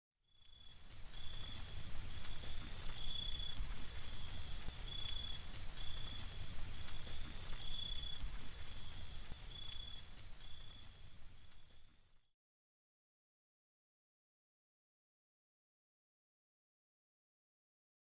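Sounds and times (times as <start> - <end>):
steady low rumble: 0.8 - 11.8.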